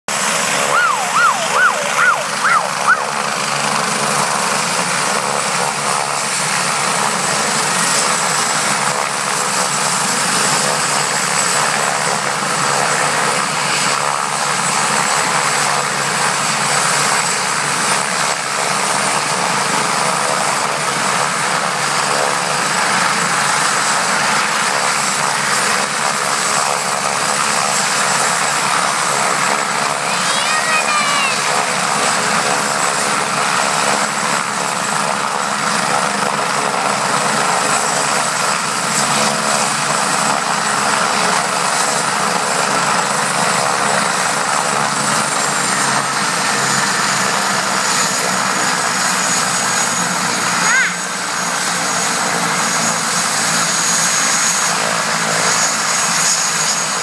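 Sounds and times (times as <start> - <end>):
helicopter turbine and rotor: 0.1 - 57.0
rising and falling whistling tones: 0.6 - 3.1.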